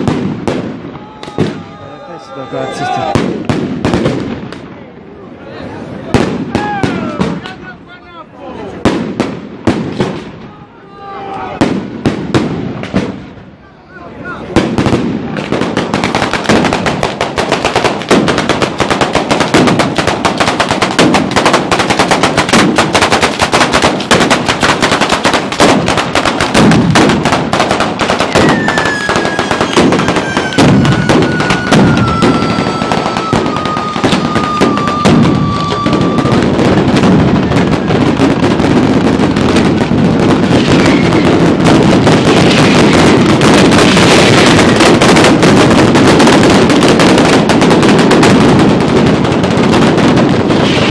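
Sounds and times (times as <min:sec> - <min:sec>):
firecrackers banging rapidly: 0:00.0 - 0:04.8, 0:05.8 - 0:13.6, 0:14.2 - 0:50.9
descending firework whistle: 0:00.8 - 0:03.5, 0:28.0 - 0:38.4, 0:40.4 - 0:43.2.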